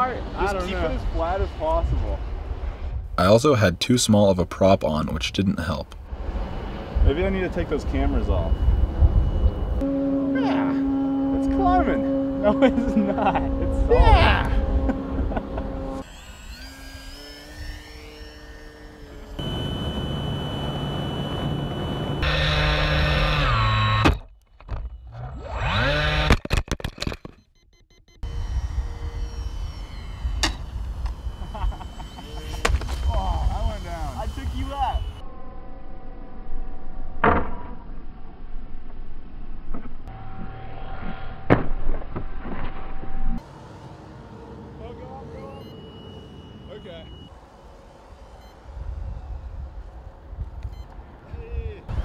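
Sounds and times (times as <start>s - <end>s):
low rumble: 6.0s - 16.0s
model plane motor whining: 8.2s - 26.4s, 28.2s - 35.2s, 45.2s - 49.9s.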